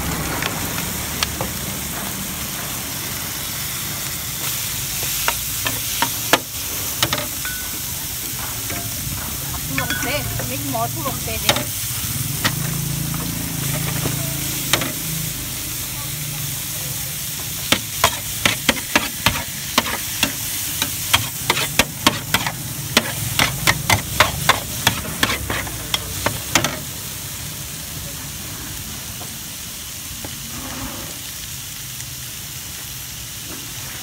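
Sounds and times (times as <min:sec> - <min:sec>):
food sizzling in a pan: 0:00.0 - 0:34.0
utensil clacking against pan: 0:17.7 - 0:26.8.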